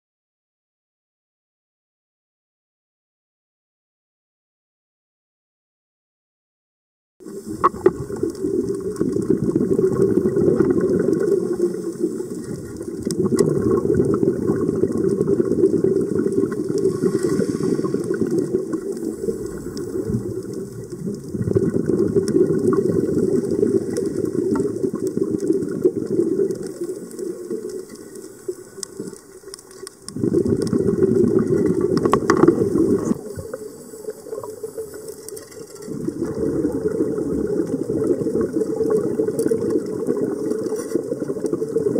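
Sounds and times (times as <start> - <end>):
diver's breath bubbling underwater: 7.2 - 27.9, 30.1 - 35.1, 35.9 - 41.9.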